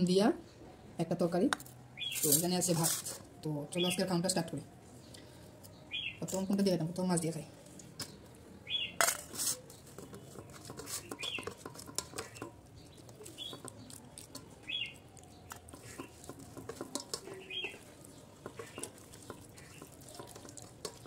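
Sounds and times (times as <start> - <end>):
bird chirping: 2.0 - 2.4, 5.0 - 6.7, 8.0 - 20.6
fingers mixing food on plate: 6.3 - 21.0.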